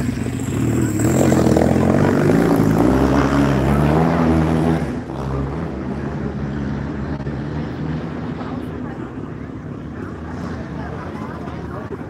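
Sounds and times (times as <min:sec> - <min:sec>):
racing engine: 0:00.0 - 0:12.0.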